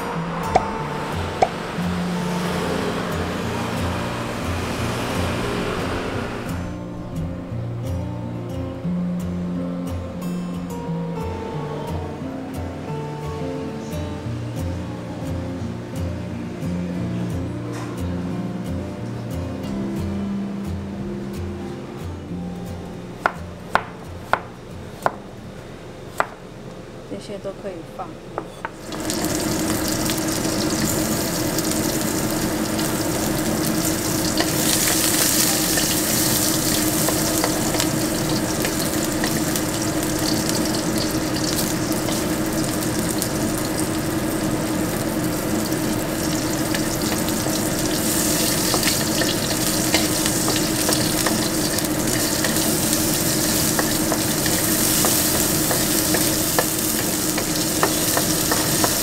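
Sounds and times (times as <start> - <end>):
low hum: 0.0 - 11.8
vegetables sizzling in oil: 28.8 - 59.0.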